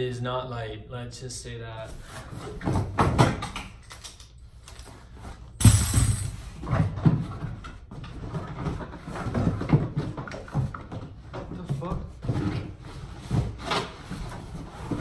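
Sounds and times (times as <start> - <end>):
cardboard box rustling and scraping: 11.6 - 15.0.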